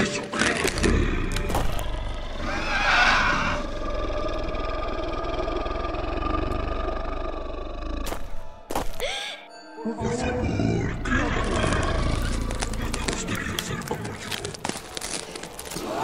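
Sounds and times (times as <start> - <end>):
big cat roar: 0.4 - 8.1, 10.0 - 14.4
low rumbling growl: 0.8 - 8.1, 10.3 - 13.4.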